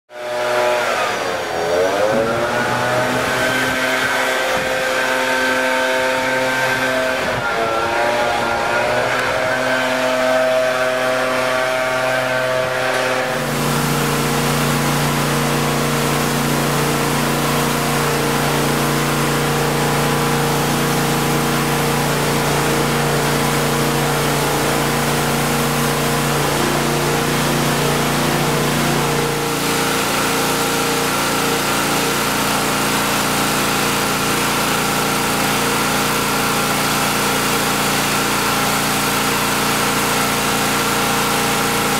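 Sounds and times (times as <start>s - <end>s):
pressure washer engine running: 0.1s - 41.9s
hiss of spraying water: 13.4s - 41.9s.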